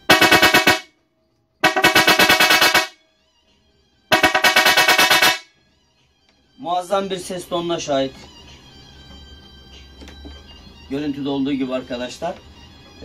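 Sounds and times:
electric horn rasping buzz: 0.0s - 0.9s, 1.6s - 3.0s, 4.1s - 5.5s.

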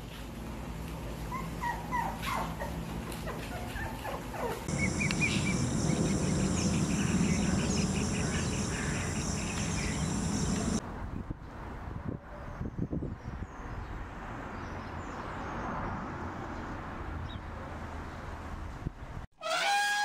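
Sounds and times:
puppies whimpering and yipping: 1.3s - 10.8s
high pulsing hiss: 4.7s - 10.8s.

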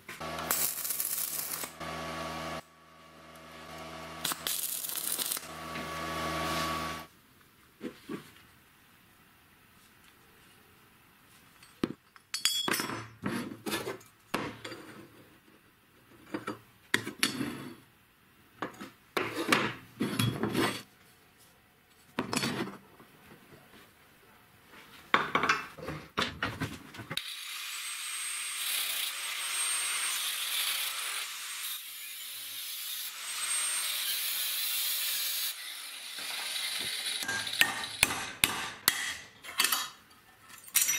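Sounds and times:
angle grinder cutting steel: 0.2s - 7.1s, 27.2s - 38.1s
steel parts clinking and scraping: 0.4s - 1.8s, 4.2s - 5.5s, 36.3s - 38.0s, 39.0s - 40.9s.

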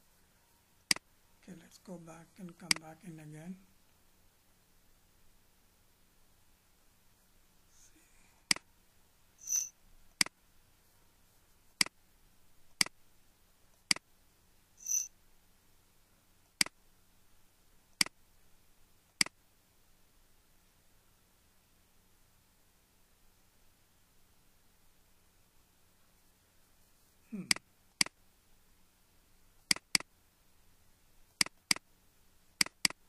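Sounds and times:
short high beeps: 14.8s - 15.1s
computer mouse button clicking: 29.7s - 30.1s.

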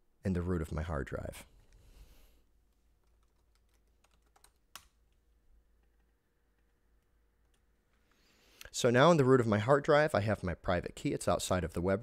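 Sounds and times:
computer keyboard typing: 3.0s - 5.2s.

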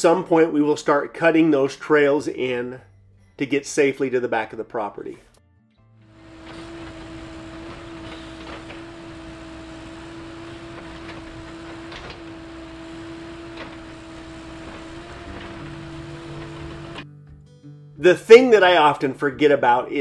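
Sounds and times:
machine motor running: 6.1s - 17.0s.

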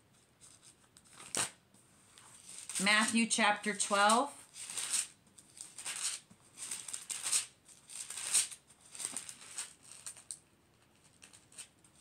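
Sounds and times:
thin pages turning and rustling: 0.4s - 3.3s, 3.9s - 10.4s.

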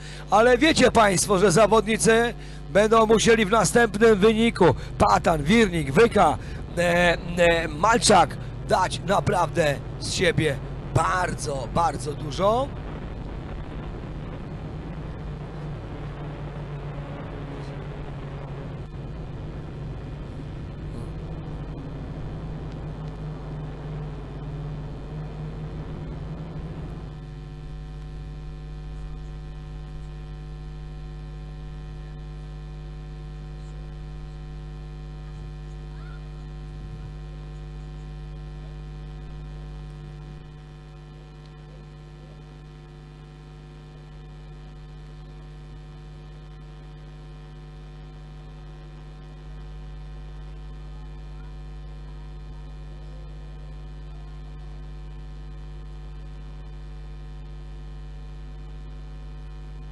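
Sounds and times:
electrical mains hum: 0.0s - 59.9s.

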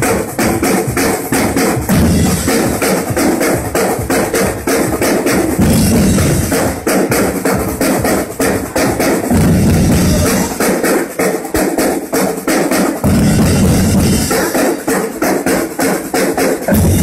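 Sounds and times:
heavy bass drums: 0.0s - 11.0s, 13.0s - 14.6s, 16.7s - 17.0s
many drums playing fast: 0.0s - 17.0s.

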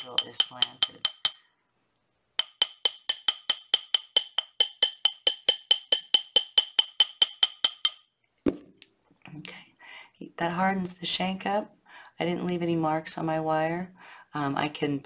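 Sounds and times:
small hammer tapping metal ring: 0.0s - 1.4s, 2.4s - 8.1s.

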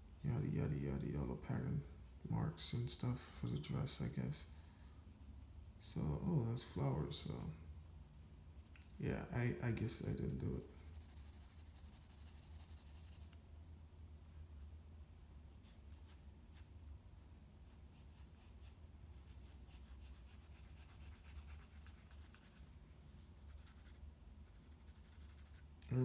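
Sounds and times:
pencil sketching on paper: 0.3s - 7.5s, 9.9s - 13.4s, 17.6s - 25.6s.

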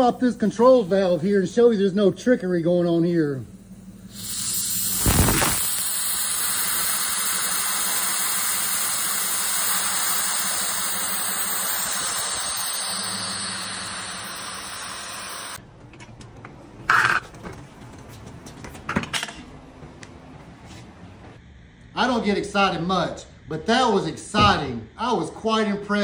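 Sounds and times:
compressed air hissing: 3.9s - 15.6s.

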